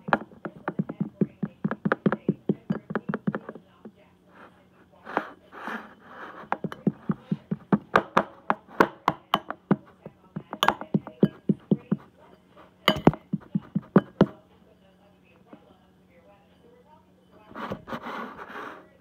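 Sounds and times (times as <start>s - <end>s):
fork clinking against a bowl: 10.5s - 11.9s, 12.8s - 14.3s.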